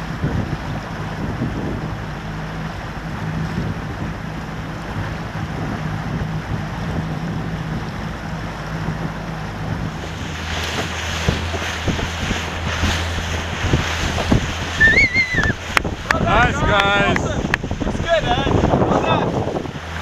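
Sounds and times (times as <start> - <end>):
boat motor humming: 0.0 - 20.0
wind buffeting microphone: 0.0 - 20.0
high wavering call: 14.8 - 15.6.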